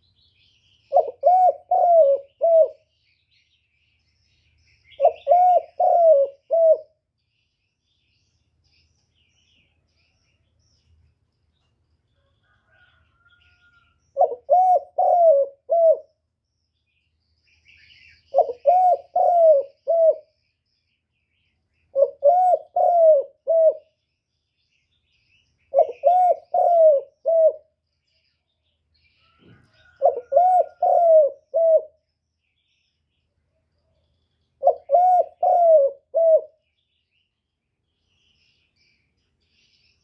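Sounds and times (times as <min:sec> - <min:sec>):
dove cooing: 0:00.9 - 0:02.9, 0:04.9 - 0:07.0, 0:14.2 - 0:16.2, 0:18.3 - 0:20.3, 0:21.9 - 0:23.9, 0:25.7 - 0:27.7, 0:29.3 - 0:32.0, 0:34.6 - 0:36.6.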